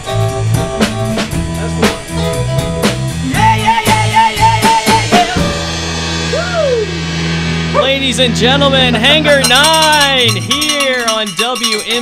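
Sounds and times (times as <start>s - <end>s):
electric guitars: 0.0s - 11.2s
drum kit: 0.0s - 12.0s
electric bass: 0.0s - 12.0s
high guitar figure: 0.0s - 12.0s
held guitar chord ringing: 1.5s - 12.0s.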